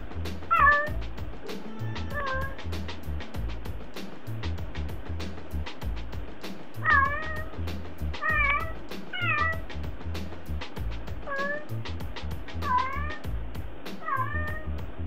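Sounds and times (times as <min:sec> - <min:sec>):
music with steady beat: 0:00.0 - 0:15.0
cat meowing: 0:00.5 - 0:02.6, 0:06.8 - 0:07.6, 0:08.2 - 0:09.6, 0:11.2 - 0:11.8, 0:12.6 - 0:13.2, 0:14.0 - 0:14.7.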